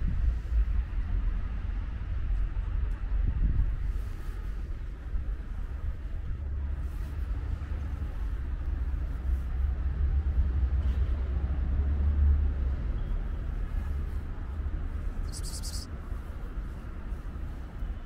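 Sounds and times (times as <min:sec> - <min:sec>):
low outdoor rumble: 0:00.0 - 0:18.0
brief high hiss: 0:15.2 - 0:15.9.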